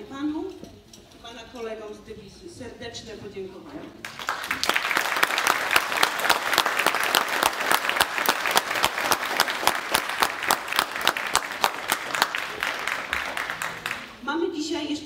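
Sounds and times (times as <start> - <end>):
audience applause: 4.0 - 14.2.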